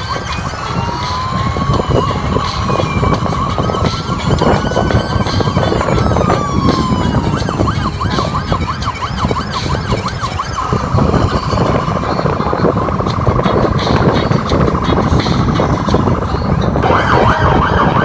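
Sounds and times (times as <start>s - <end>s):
low rumble of vehicles: 0.0s - 18.0s
police siren wailing and yelping: 0.0s - 18.0s.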